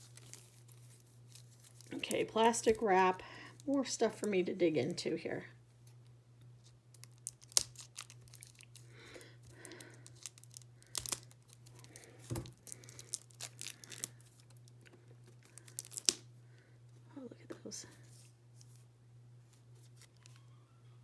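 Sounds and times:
plastic wrap crinkling and tearing: 0:00.0 - 0:03.0, 0:06.6 - 0:16.3, 0:19.7 - 0:20.4.

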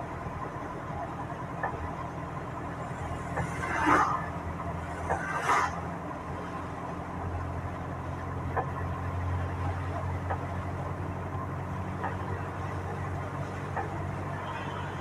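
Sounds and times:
vehicle engine humming: 0:00.0 - 0:15.0.

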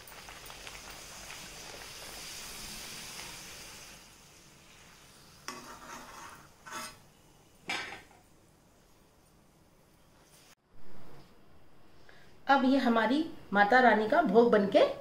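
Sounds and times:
food sizzling in hot oil: 0:00.0 - 0:08.2
metal spoon scraping a pan: 0:05.4 - 0:07.1.

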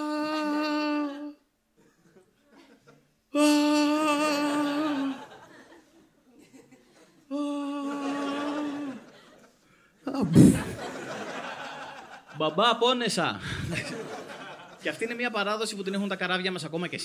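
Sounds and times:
man crying aaah: 0:00.0 - 0:01.5, 0:03.3 - 0:05.4, 0:07.3 - 0:09.1, 0:10.1 - 0:10.9
faint audience laughter: 0:01.9 - 0:03.2, 0:05.1 - 0:07.3, 0:10.4 - 0:12.4, 0:13.5 - 0:14.8.

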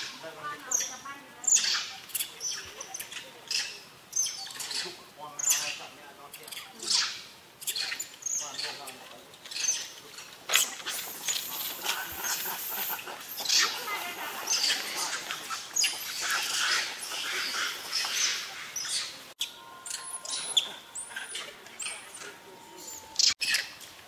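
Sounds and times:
monkeys screaming and shrieking: 0:00.0 - 0:23.9
high chirps: 0:10.6 - 0:23.8.

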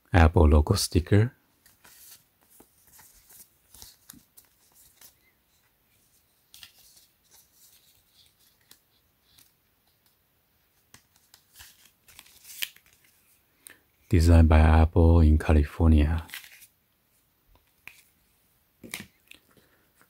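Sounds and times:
paper cards scraping and rustling: 0:01.6 - 0:13.4, 0:16.2 - 0:16.7, 0:17.6 - 0:18.2.

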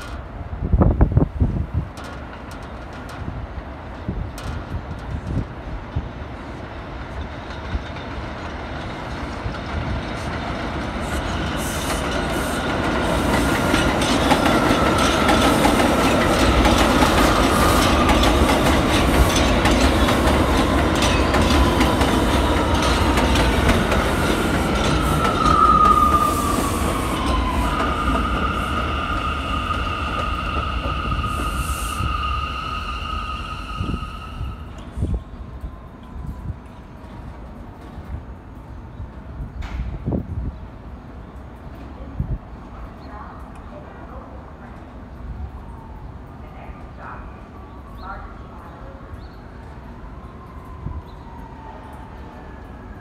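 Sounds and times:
subway train rumbling: 0:00.0 - 0:53.0
train brake whine: 0:24.0 - 0:35.3.

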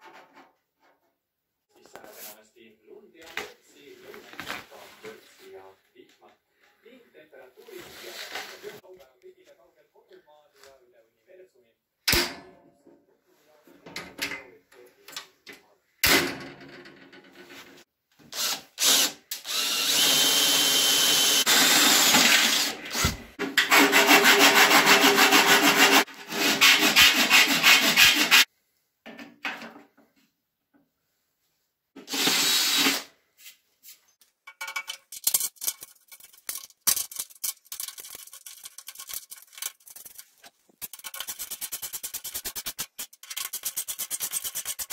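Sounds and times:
power tool cutting metal: 0:32.0 - 0:33.1.

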